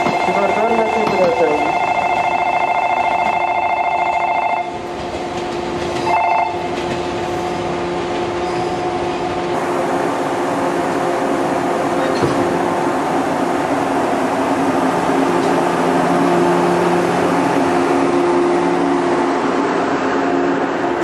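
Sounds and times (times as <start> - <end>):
electric train running: 0.0 - 21.0
electric bell ringing: 0.3 - 4.7.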